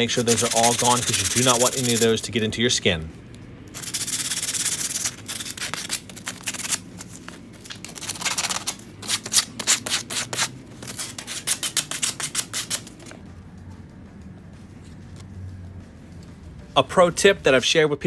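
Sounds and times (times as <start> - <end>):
sandpaper rubbing on metal: 0.0 - 2.2, 3.8 - 6.8, 8.2 - 13.0.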